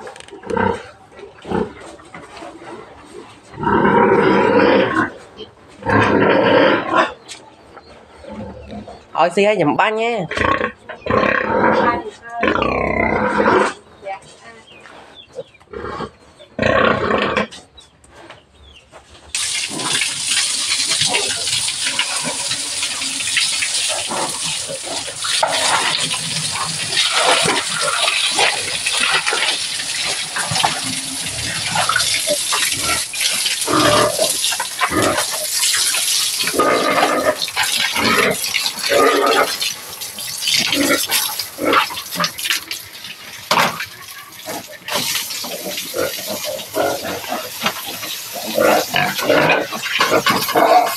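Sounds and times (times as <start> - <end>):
pig grunting: 0.0 - 7.3, 8.0 - 9.2, 10.2 - 14.0, 15.3 - 17.7, 20.7 - 35.6, 36.3 - 39.8, 40.6 - 42.8, 43.5 - 50.9
hose spraying water on concrete: 19.3 - 50.9.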